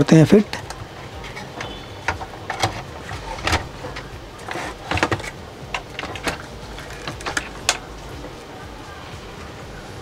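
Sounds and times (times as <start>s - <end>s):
clicks of plastic and metal parts: 0.5s - 7.8s.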